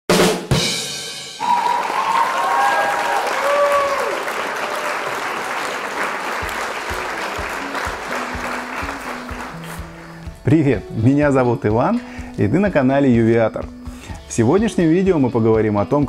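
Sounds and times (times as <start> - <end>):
crowd applauding and cheering: 1.4 - 10.1
music with low beat: 6.4 - 15.8.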